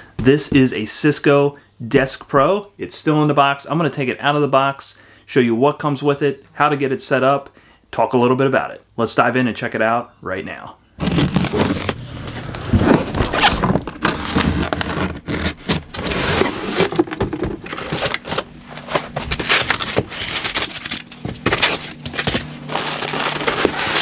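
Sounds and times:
plastic bag crinkling: 11.0 - 12.0, 13.2 - 24.0
cardboard box scraping: 11.0 - 24.0
foam packing rustling: 11.0 - 24.0.

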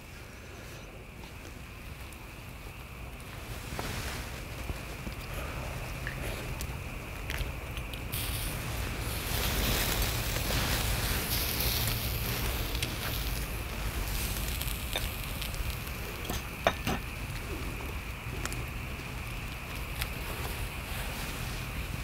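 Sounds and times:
prawns sizzling on hot salt: 0.0 - 22.0
steady low rumble: 0.0 - 22.0.

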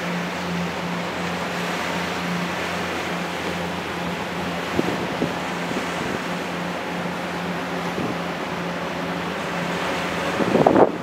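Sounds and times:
ferry engine droning: 0.0 - 11.0
water wash: 0.0 - 11.0
wind on microphone: 4.1 - 6.6, 7.7 - 8.6, 9.5 - 11.0.

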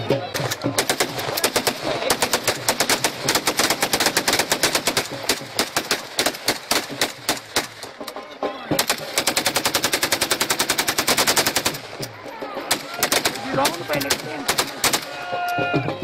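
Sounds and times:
rifles firing rapidly: 0.3 - 8.0, 8.8 - 15.3.

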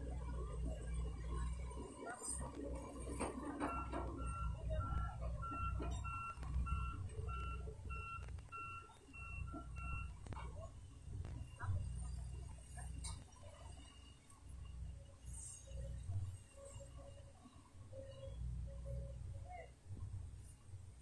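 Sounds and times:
diesel engine running: 0.0 - 21.0
excavator warning alarm beeping: 2.7 - 13.1.

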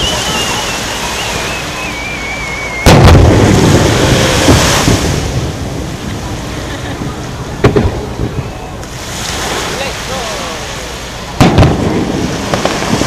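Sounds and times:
firework whistle falling in pitch: 0.0 - 3.2.

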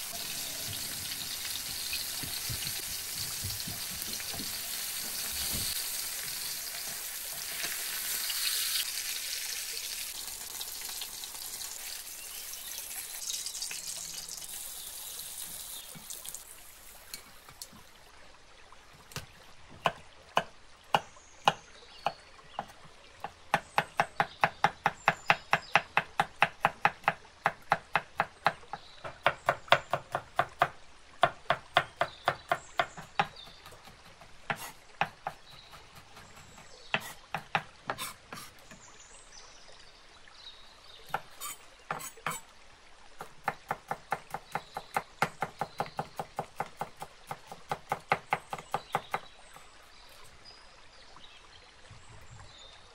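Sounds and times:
knife chopping on wooden board: 1.7 - 4.6, 41.1 - 42.4.

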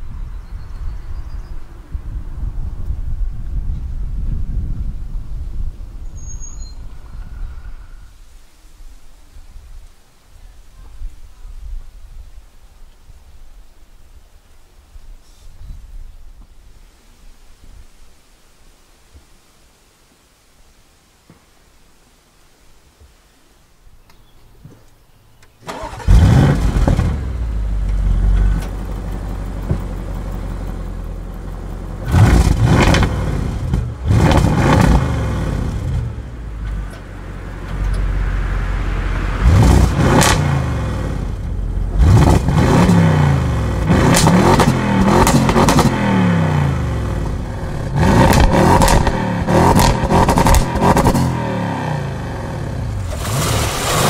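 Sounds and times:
car engine starting and revving: 25.6 - 54.0
exhaust crackles: 25.6 - 54.0.

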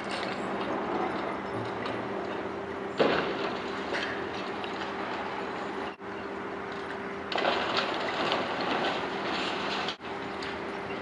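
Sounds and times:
crane engine hum: 0.0 - 11.0
concrete debris falling: 7.3 - 10.0.

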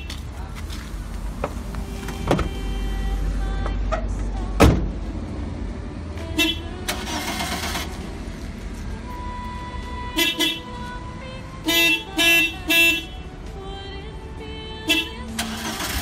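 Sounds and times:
van engine running: 0.0 - 16.0
sharp thump: 4.6 - 4.9.

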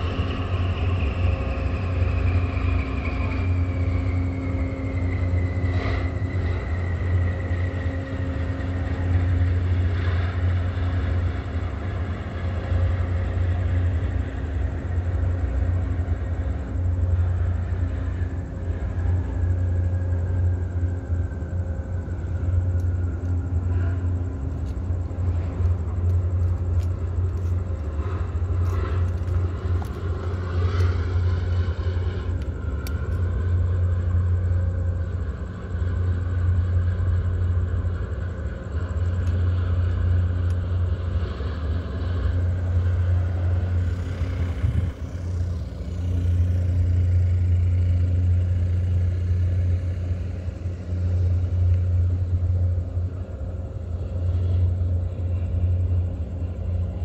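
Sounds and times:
faint hum: 0.0 - 57.0
low engine-like rumble: 0.0 - 57.0
rising and falling whine: 0.0 - 57.0.

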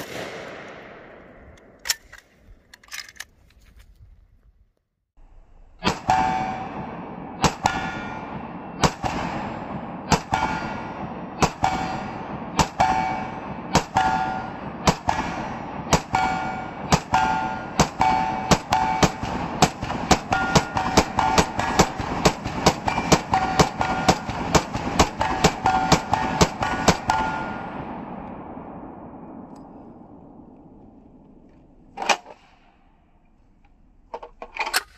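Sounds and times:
rifle firing single shots: 0.0 - 2.2, 5.8 - 29.5.

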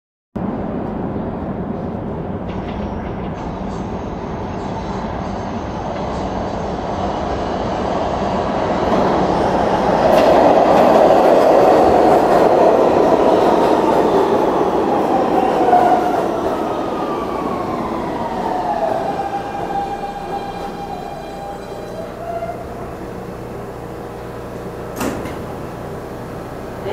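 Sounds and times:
train wheels rumbling on rails: 0.4 - 26.9
traction motors whining: 14.2 - 26.9.

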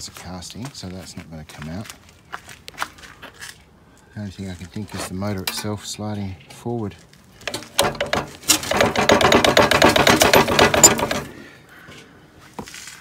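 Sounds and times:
rapid metallic rattling: 7.4 - 11.3.

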